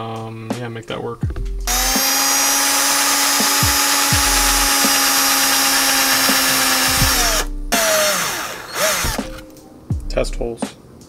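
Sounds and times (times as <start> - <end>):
cordless drill boring into wood: 1.7 - 9.4.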